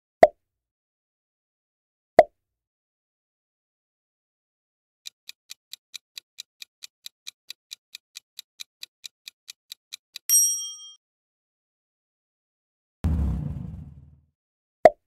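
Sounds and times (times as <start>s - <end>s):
clock-like ticks: 5.0s - 10.3s
bright bell ding: 10.3s - 11.0s.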